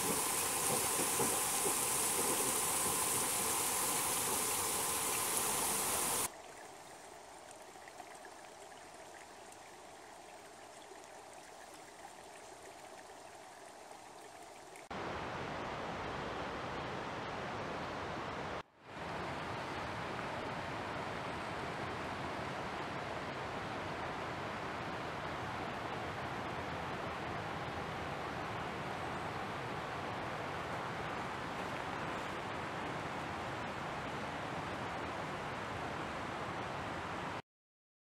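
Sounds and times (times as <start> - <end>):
running water rushing: 0.0 - 15.5.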